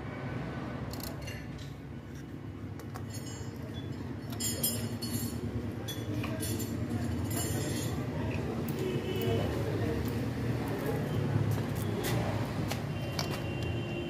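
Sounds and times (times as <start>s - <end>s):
light metallic clinks and taps: 2.8s - 8.8s.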